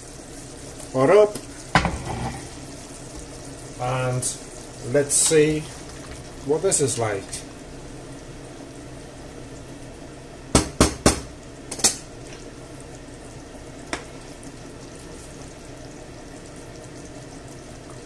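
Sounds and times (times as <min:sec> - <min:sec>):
sauce simmering: 0:00.0 - 0:10.5, 0:11.3 - 0:18.0.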